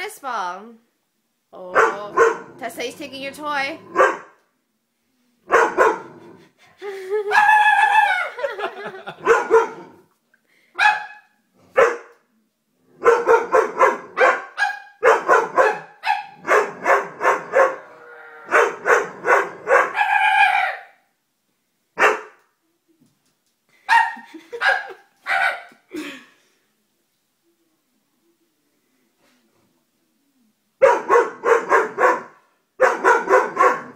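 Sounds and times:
dog barking: 1.7s - 2.5s, 3.9s - 4.4s, 5.5s - 6.1s, 9.2s - 9.9s, 10.8s - 12.2s, 13.0s - 17.8s, 18.5s - 21.0s, 22.0s - 22.4s, 23.9s - 25.8s, 30.8s - 33.9s.

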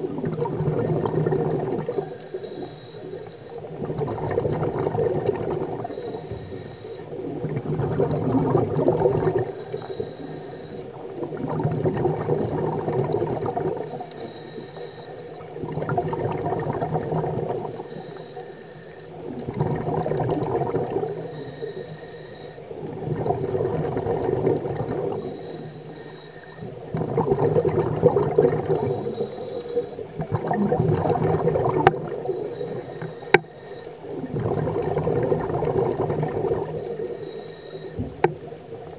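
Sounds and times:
regulator inhale hiss: 1.9s - 3.7s, 5.8s - 7.2s, 9.3s - 11.0s, 13.7s - 15.6s, 17.6s - 19.3s, 20.9s - 22.8s, 25.1s - 26.9s, 28.7s - 30.3s, 32.2s - 34.2s, 36.6s - 38.4s
bubbling exhaust: 7.2s - 9.6s, 26.7s - 33.4s, 34.2s - 37.1s.

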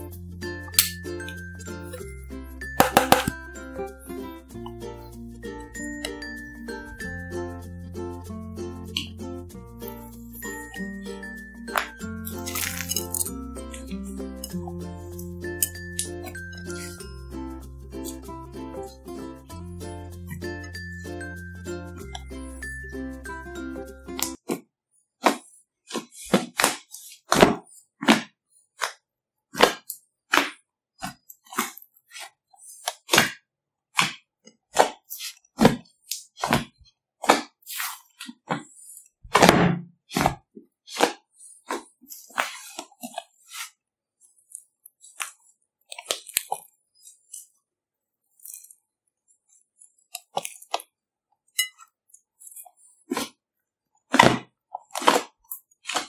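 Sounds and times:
slime crackling and squelching: 11.7s - 13.9s, 34.0s - 47.6s.

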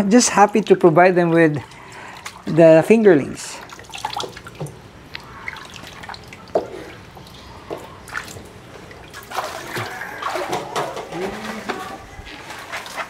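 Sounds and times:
water splashing and dripping: 0.0s - 13.0s
water sloshing: 0.5s - 13.0s
plastic buckets knocking: 9.5s - 13.0s.

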